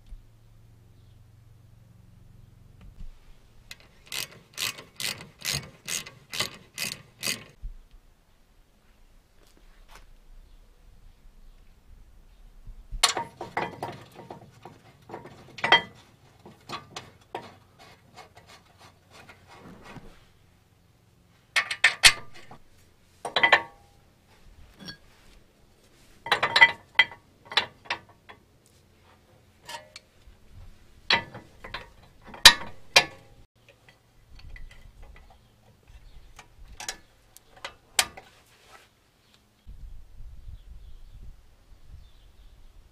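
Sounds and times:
metal tools clinking and clanking: 13.0 - 17.6, 23.3 - 23.9, 26.2 - 28.4, 29.6 - 30.1, 31.1 - 38.3.

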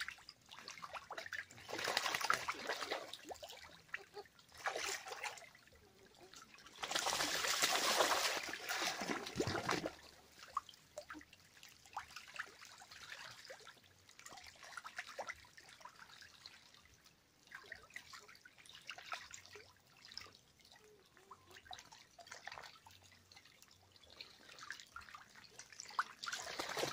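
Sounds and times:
ducks splashing in water: 0.0 - 11.2, 24.4 - 26.9.

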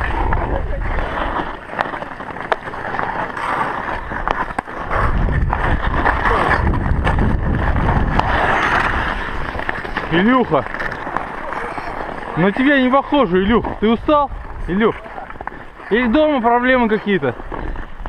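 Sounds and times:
hockey sticks clacking: 0.0 - 18.0
skate blades scraping ice: 0.0 - 18.0.

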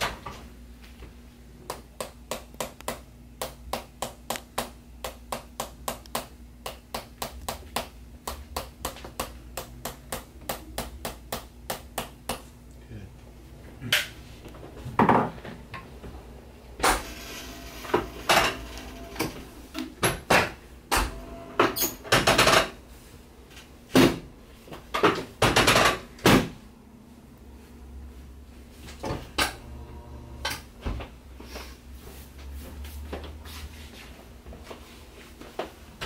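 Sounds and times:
treatment table knocking and clicking: 24.9 - 26.4.

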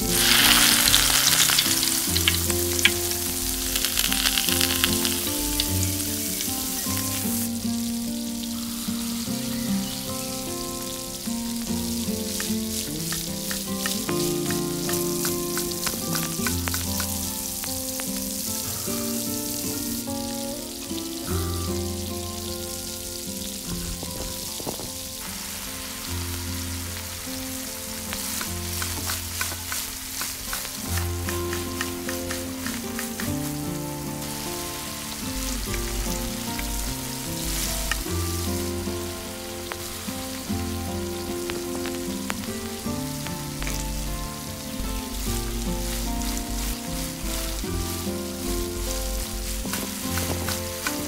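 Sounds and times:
stirring clicks: 0.0 - 7.3, 12.3 - 17.4, 28.2 - 33.5, 45.4 - 51.0
food sizzling in hot oil: 0.0 - 51.0
gentle background music: 0.0 - 51.0.

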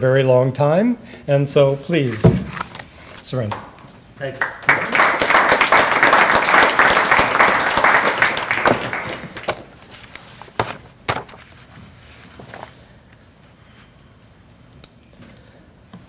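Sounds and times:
audience applauding: 4.2 - 9.7.

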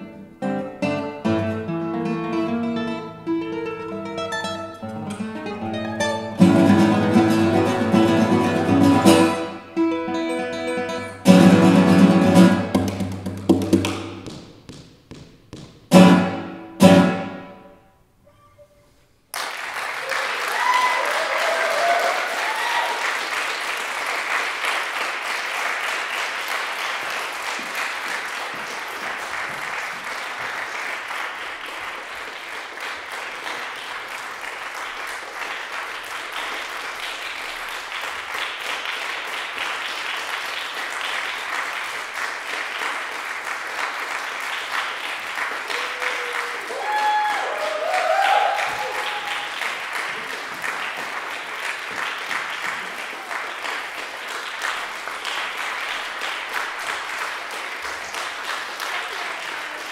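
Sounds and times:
classical guitar chords: 0.0 - 14.2, 15.9 - 18.7
audience applause: 19.3 - 59.9
people cheering: 19.6 - 25.0, 45.4 - 51.0.

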